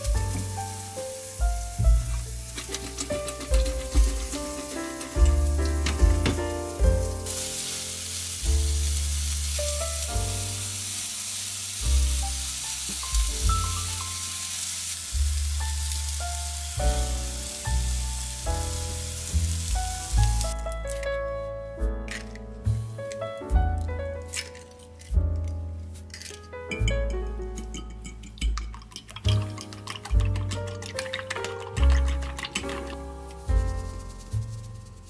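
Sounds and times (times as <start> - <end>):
mushrooms sizzling in oil: 0.0 - 21.0, 29.2 - 35.0
background music: 0.0 - 35.0.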